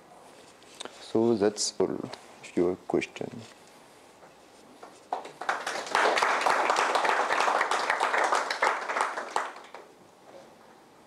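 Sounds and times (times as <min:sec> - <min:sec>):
audience applauding: 0:05.1 - 0:09.9.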